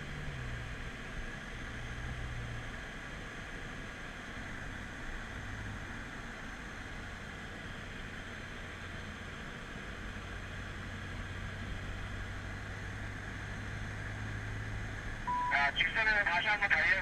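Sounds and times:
low engine drone: 0.0s - 17.0s.

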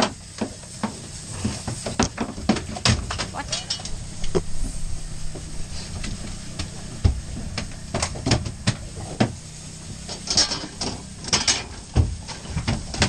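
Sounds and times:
low steady hum: 0.3s - 13.0s
short hissing bursts: 3.2s - 12.3s.

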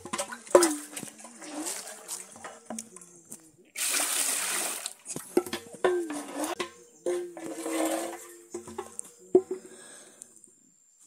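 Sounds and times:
jug knocking and splashing: 0.0s - 2.9s, 3.8s - 9.7s
water pouring: 0.0s - 3.0s, 3.8s - 5.5s, 6.1s - 8.9s.

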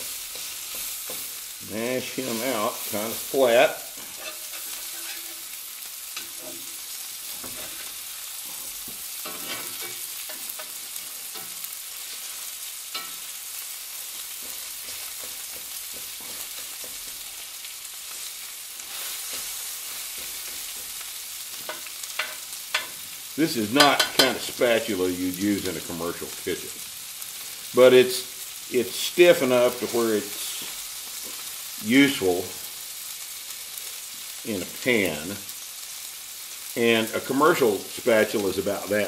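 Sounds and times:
metal spatula scraping a pan: 0.0s - 23.0s
meat sizzling in a skillet: 0.0s - 39.0s.

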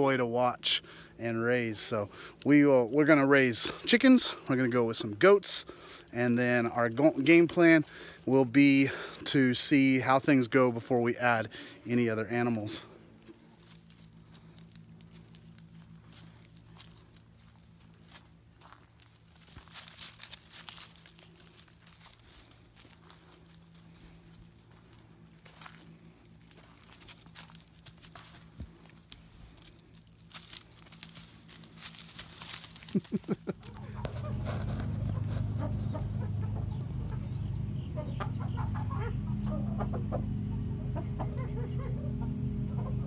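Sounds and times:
steady low hum: 0.0s - 43.0s
dry leaves and twigs rustling: 12.7s - 43.0s
chickens clucking: 32.8s - 43.0s
rooster and hen calls: 33.6s - 43.0s.

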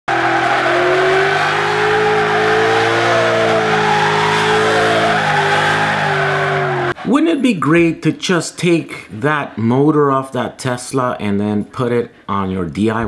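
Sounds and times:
car tyres squealing: 0.1s - 7.2s.

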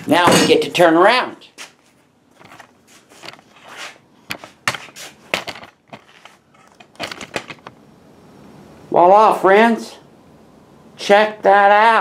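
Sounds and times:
footsteps on shop floor: 1.5s - 6.6s.

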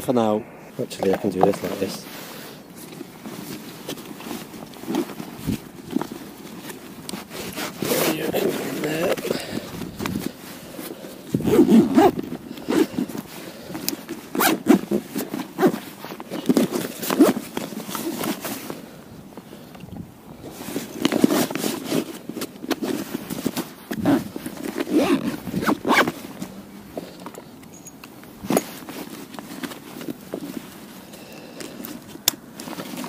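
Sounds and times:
fabric and straps rustling: 0.0s - 33.0s
zips pulled: 7.2s - 10.4s, 11.3s - 13.2s, 14.2s - 18.5s, 23.9s - 26.2s.

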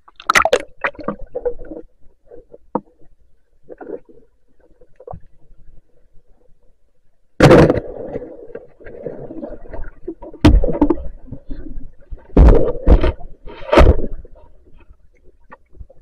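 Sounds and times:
underwater churning noise: 0.0s - 2.6s, 7.4s - 14.6s.

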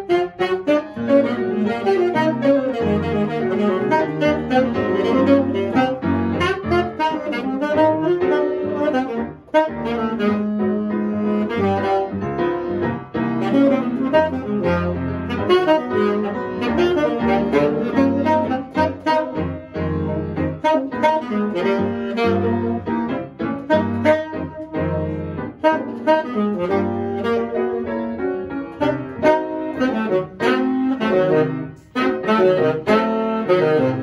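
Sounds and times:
jazz saxophone melody: 0.0s - 34.0s.

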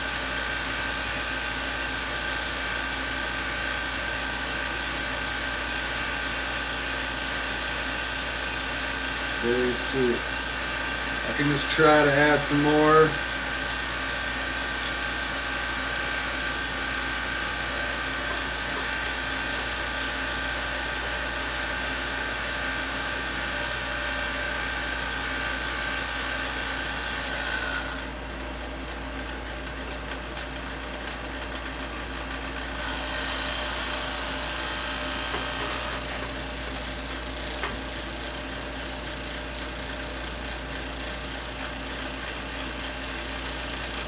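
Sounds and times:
tesla coil buzzing: 11.2s - 13.2s.

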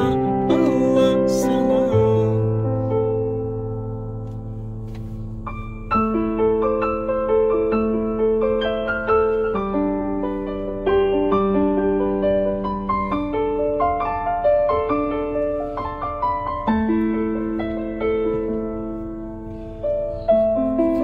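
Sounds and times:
slow solo piano: 0.0s - 21.0s.

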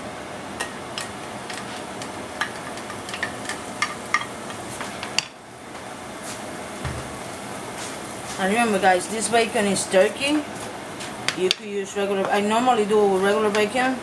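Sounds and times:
bacon sizzling: 0.5s - 5.4s, 6.1s - 12.2s.

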